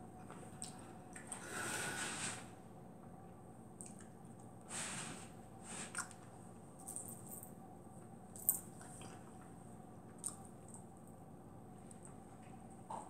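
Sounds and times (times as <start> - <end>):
wet chewing and finger-licking: 3.8 - 4.2, 10.1 - 10.9.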